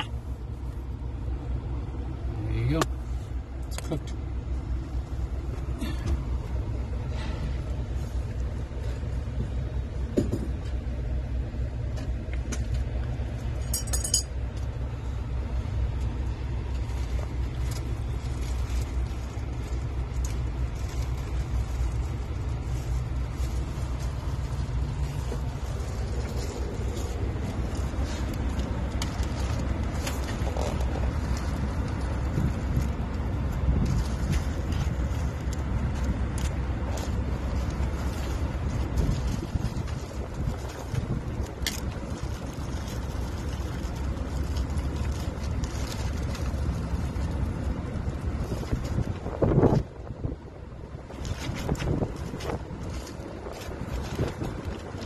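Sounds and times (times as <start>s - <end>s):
diesel truck engine idling: 0.0s - 55.0s
tools rattling in a bag: 13.4s - 15.0s
metallic clinking: 13.6s - 14.4s.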